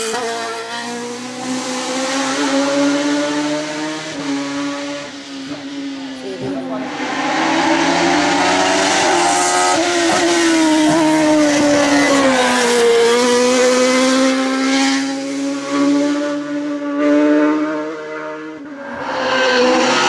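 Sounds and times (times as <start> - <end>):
race car engine running hard: 3.4 - 15.9.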